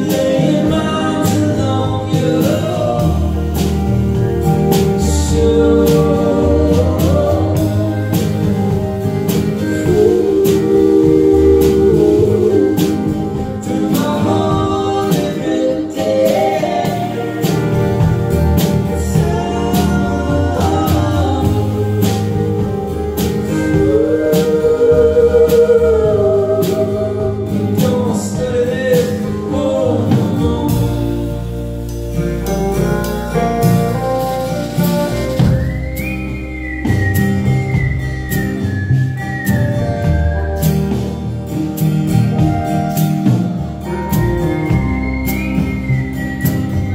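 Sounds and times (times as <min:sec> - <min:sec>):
person singing with vibrato: 0:00.0 - 0:31.8
electric guitar: 0:00.0 - 0:46.9
steady drum beat: 0:00.0 - 0:46.9
strummed acoustic guitar: 0:00.0 - 0:46.9.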